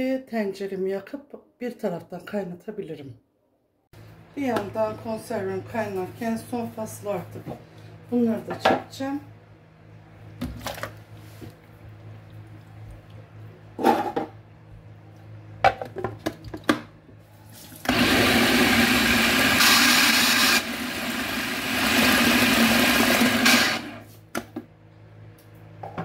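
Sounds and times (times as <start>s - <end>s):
food processor motor chopping: 17.9s - 24.1s.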